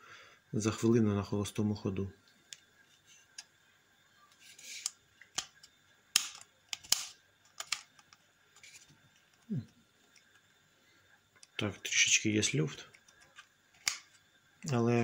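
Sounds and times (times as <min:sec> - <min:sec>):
switch sliding scrapes: 0:04.4 - 0:05.0.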